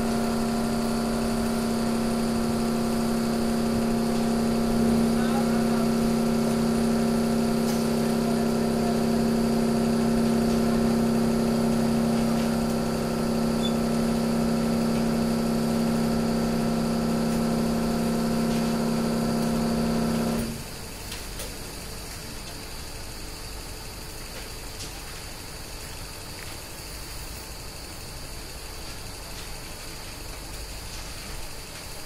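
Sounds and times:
hydraulic power unit humming: 0.0s - 21.5s.

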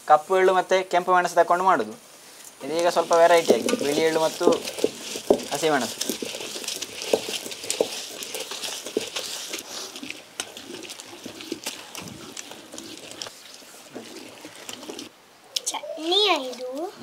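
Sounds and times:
stone grinder scraping: 2.6s - 15.1s.

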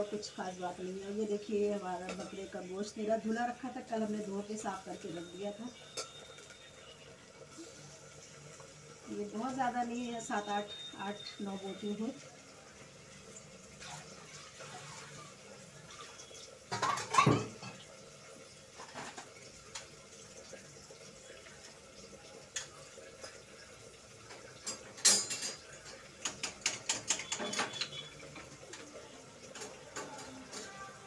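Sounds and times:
metal kitchen utensils clattering: 13.8s - 17.9s, 18.7s - 20.0s, 24.2s - 31.0s.

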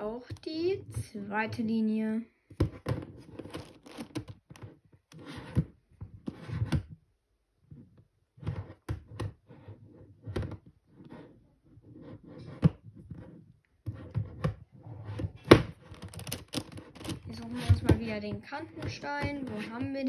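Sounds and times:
plastic puzzle clicking turns: 2.6s - 5.7s, 15.2s - 18.1s.

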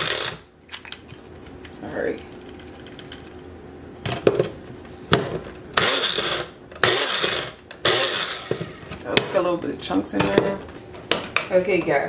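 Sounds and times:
blender chopping: 0.0s - 0.5s, 5.8s - 8.6s.

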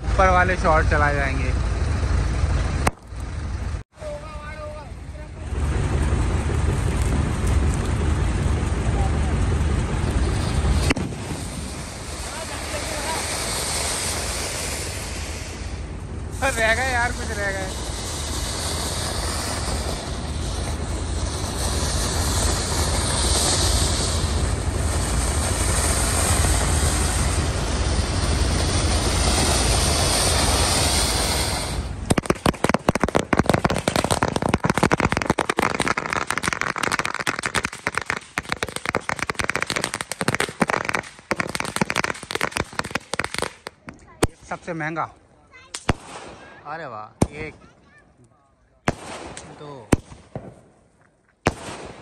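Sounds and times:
firecracker bangs and crackles: 0.0s - 48.0s, 48.8s - 52.0s
steady rushing hiss: 4.0s - 45.2s.

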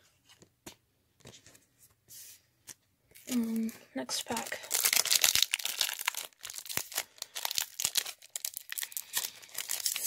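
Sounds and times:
foil wrapper crinkling: 3.2s - 10.0s.

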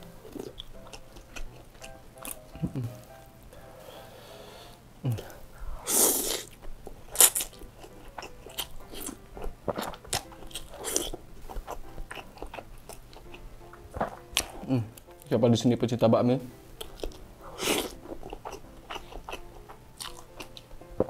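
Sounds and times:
wet chewing clicks: 6.3s - 15.1s, 16.8s - 20.8s.

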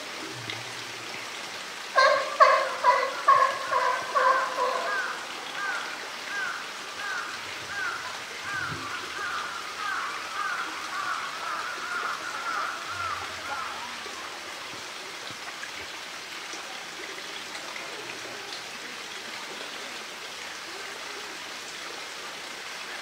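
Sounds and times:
bird calling: 2.0s - 14.0s.

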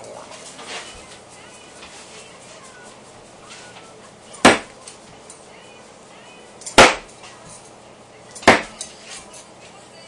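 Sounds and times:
thrown knives hitting wood: 4.4s - 4.7s, 6.8s - 7.1s, 8.4s - 8.9s.

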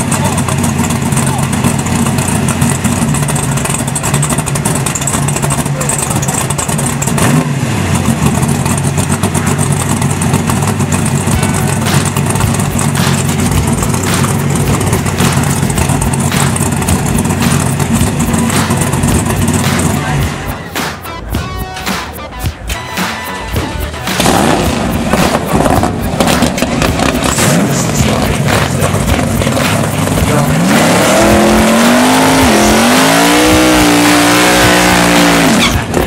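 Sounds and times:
car engine idling loudly: 0.0s - 21.4s, 23.4s - 36.0s
engine revving: 0.0s - 36.0s
sharp engine pops: 9.0s - 20.0s, 24.1s - 30.3s.

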